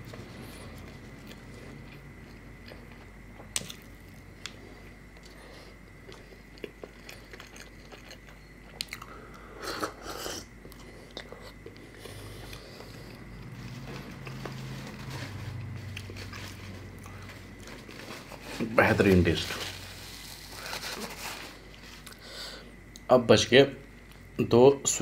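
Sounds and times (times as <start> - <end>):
person biting and chewing food: 0.4 - 18.4.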